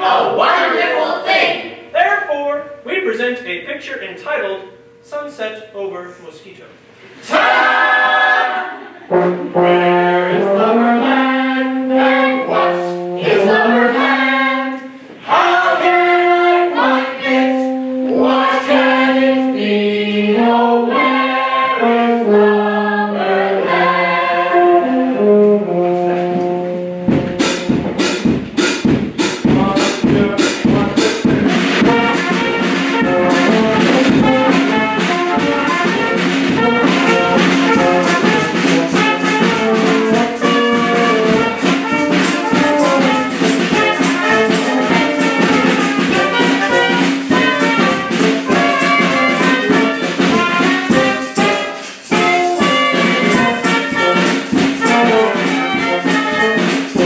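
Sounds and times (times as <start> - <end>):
brass band playing: 0.0 - 5.5, 6.8 - 57.0
percussion steady beat: 25.2 - 57.0.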